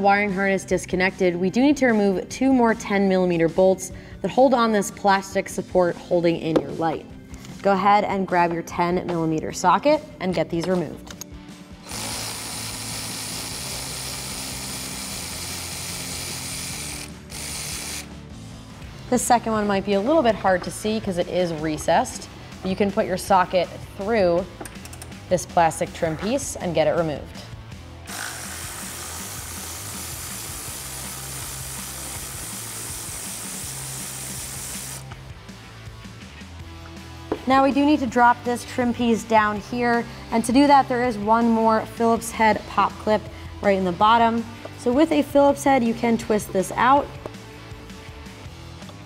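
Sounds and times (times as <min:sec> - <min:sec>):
background music: 0:00.0 - 0:49.0
cordless drill whirring: 0:11.8 - 0:18.1, 0:28.1 - 0:35.0
electric ratchet running: 0:11.8 - 0:18.2, 0:28.1 - 0:35.1.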